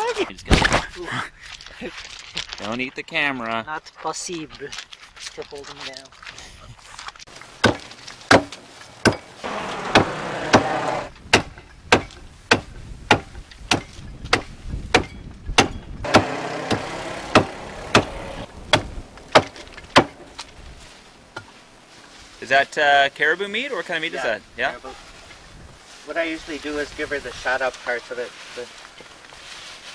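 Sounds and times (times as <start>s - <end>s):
cleaver chopping meat on board: 9.8s - 20.2s.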